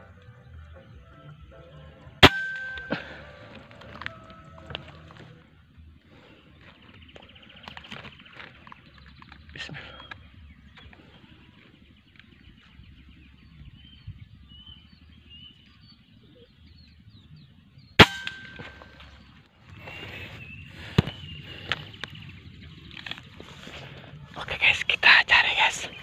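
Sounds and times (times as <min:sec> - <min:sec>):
air rifle shot: 0:02.2 - 0:03.4, 0:18.0 - 0:19.0
faint bird chirps: 0:05.4 - 0:26.0.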